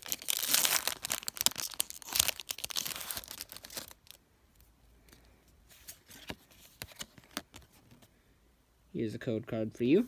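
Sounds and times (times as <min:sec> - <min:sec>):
foil wrapper crinkling and tearing: 0:00.0 - 0:04.2.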